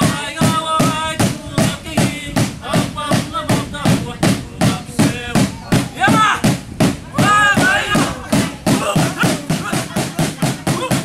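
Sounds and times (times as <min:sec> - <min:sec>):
people singing: 0:00.0 - 0:11.0
steady drumbeat: 0:00.0 - 0:11.0.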